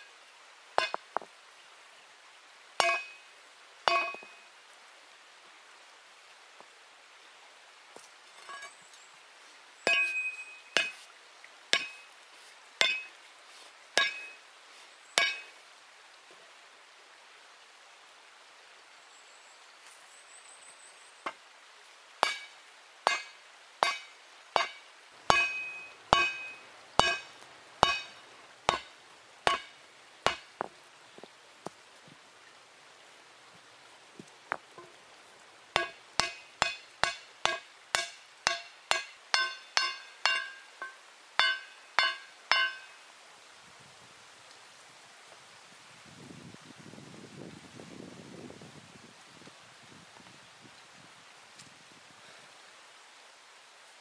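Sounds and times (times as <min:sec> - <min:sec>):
hammer striking hot steel: 0:02.8 - 0:03.2, 0:03.9 - 0:04.3, 0:09.9 - 0:11.0, 0:11.8 - 0:12.0, 0:12.8 - 0:13.1, 0:14.0 - 0:14.4, 0:15.2 - 0:15.5, 0:22.2 - 0:22.5, 0:23.1 - 0:28.9, 0:29.5 - 0:29.7, 0:30.3 - 0:30.5, 0:35.8 - 0:42.9.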